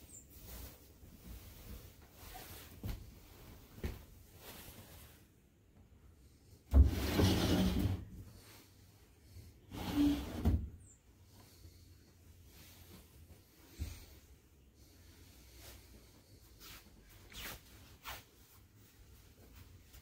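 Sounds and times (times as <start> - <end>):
sliding door scraping in track: 6.7 - 8.2, 9.7 - 10.7
short rubbing sound: 16.6 - 18.3.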